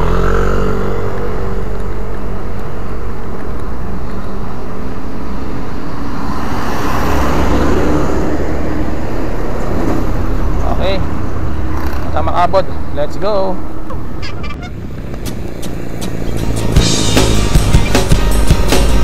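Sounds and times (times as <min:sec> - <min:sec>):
loud vehicle rumbling past: 0:00.0 - 0:12.9
traffic passing: 0:00.0 - 0:19.0.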